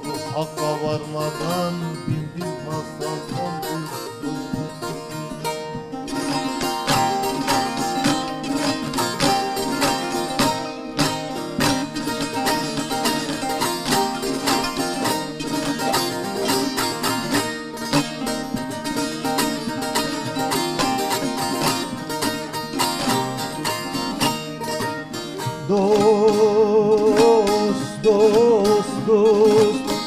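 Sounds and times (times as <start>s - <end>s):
man singing: 0.0s - 5.3s, 25.5s - 30.0s
long-necked lutes playing: 0.0s - 30.0s.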